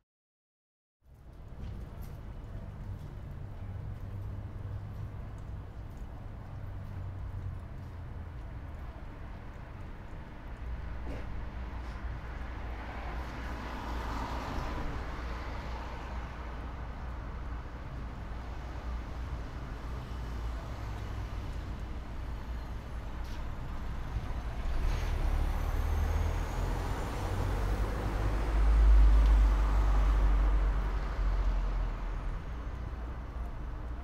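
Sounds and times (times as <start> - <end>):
road traffic rumble: 1.0 - 34.0
heavy vehicle passing: 23.7 - 33.0.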